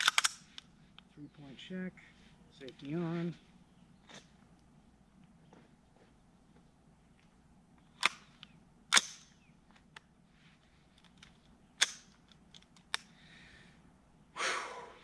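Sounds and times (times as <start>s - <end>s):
rifle action sharp metallic clacks: 0.0s - 0.7s, 8.0s - 9.4s, 11.0s - 13.1s
light rifle clicks: 0.0s - 1.1s, 10.9s - 13.2s.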